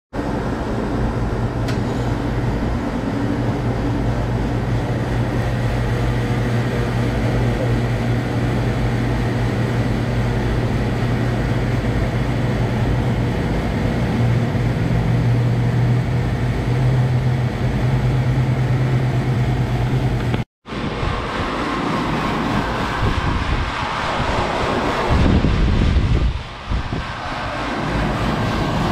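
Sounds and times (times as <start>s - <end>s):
air conditioner unit humming: 0.2s - 28.9s.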